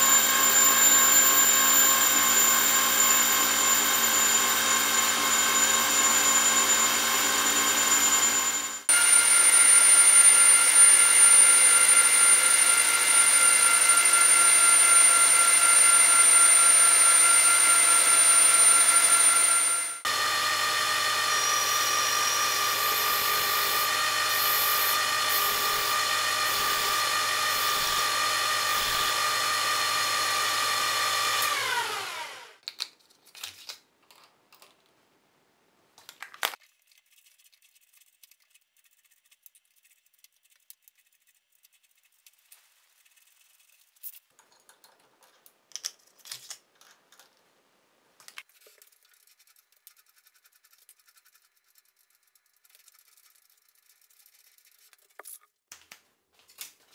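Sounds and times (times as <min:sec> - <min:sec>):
metal lathe whining: 0:00.0 - 0:32.5.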